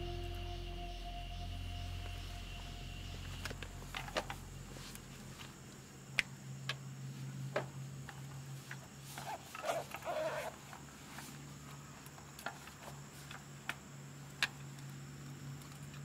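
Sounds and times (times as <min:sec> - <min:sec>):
faint low hum: 0:00.0 - 0:09.0
camping gear clicks and knocks: 0:03.4 - 0:06.8, 0:07.5 - 0:16.0.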